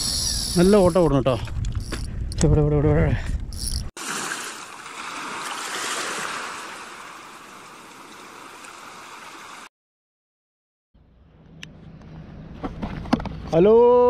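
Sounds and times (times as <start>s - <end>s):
sea waves washing on shore: 4.0s - 9.7s.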